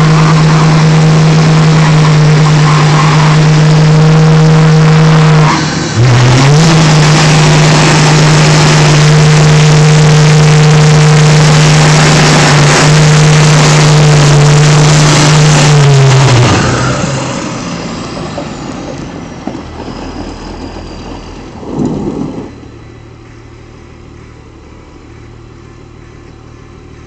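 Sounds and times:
spinning tires hissing: 0.0 - 18.6
truck engine revving high: 0.0 - 27.0.

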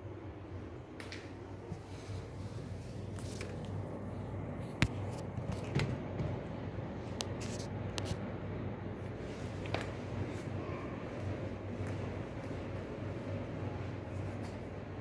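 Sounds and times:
steady low hum: 0.0 - 15.0
fabric rubbing on microphone: 7.3 - 8.2.

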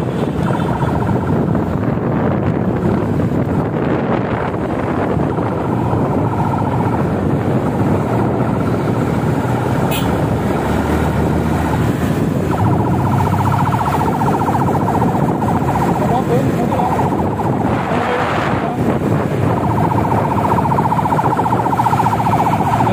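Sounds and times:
siren warbling: 0.0 - 1.5, 11.0 - 22.9
traffic noise: 0.0 - 22.9.

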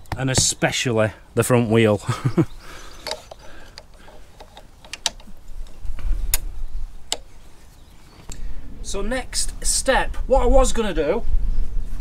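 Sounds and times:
metallic clicks and knocks: 3.0 - 6.5.

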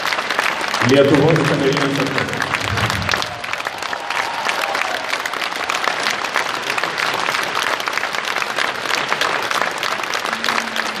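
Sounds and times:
audience applauding: 0.0 - 11.0
steady low note: 1.7 - 3.6.

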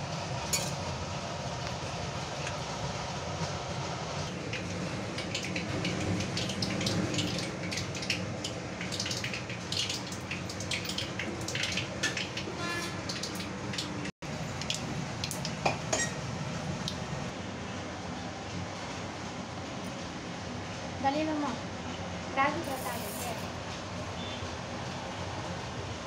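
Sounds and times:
hot oil sizzling and crackling: 4.3 - 17.4, 22.5 - 23.5.

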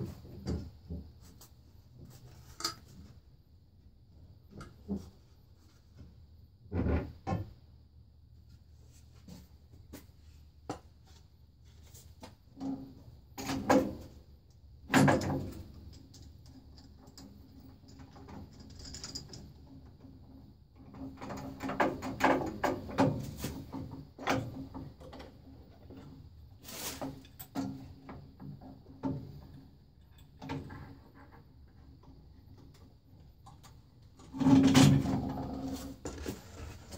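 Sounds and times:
objects knocking and scraping: 33.6 - 36.9.

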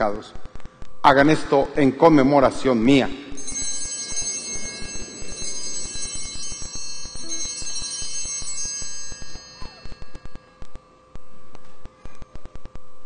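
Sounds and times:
altar bells ringing: 3.4 - 11.0.

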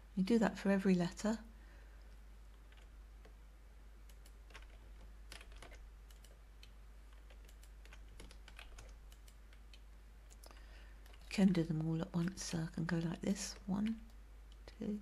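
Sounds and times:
faint low hum: 0.0 - 15.0
keyboard and mouse clicks: 2.5 - 3.4, 4.0 - 11.5.

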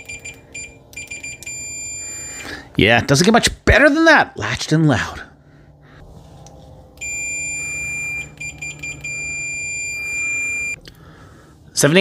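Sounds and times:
multimeter high-pitched beeping: 0.0 - 2.5, 7.0 - 10.8.

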